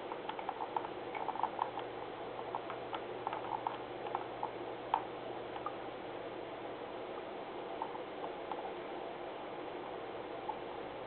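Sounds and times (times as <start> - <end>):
mouse scroll wheel clicking: 0.2 - 1.9, 2.5 - 4.3.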